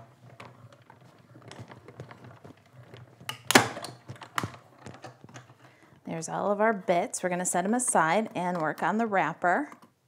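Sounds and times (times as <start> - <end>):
plastic clacks: 0.3 - 5.7.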